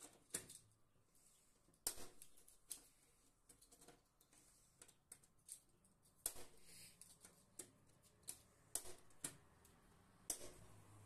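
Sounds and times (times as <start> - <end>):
plastic terminal blocks clicking: 0.0 - 0.8, 1.8 - 10.7.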